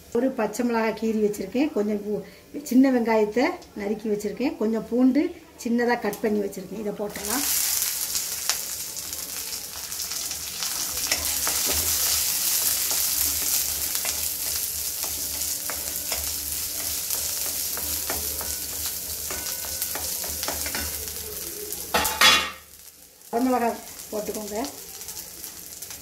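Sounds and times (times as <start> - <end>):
food sizzling in hot oil: 6.0 - 26.0.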